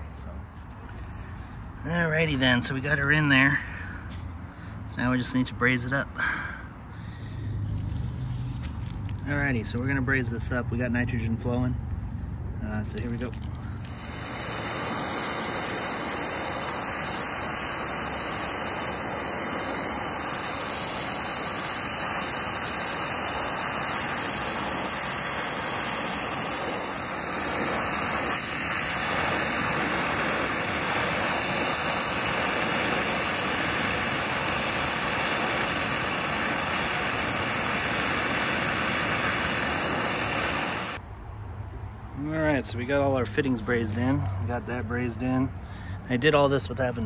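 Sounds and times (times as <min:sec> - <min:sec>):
torch flame hissing: 0:13.0 - 0:41.0.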